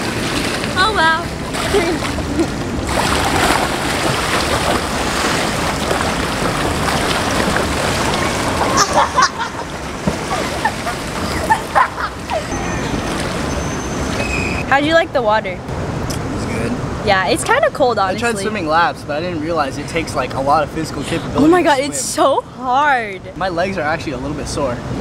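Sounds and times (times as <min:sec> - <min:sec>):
swimmers splashing: 0:00.0 - 0:15.0.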